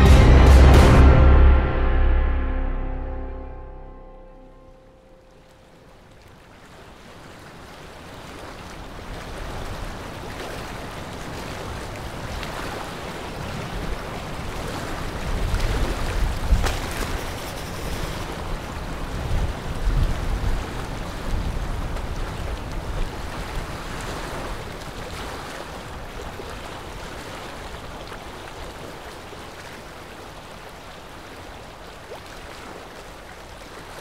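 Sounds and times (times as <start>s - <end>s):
wind rushing across open ground: 11.1s - 26.7s.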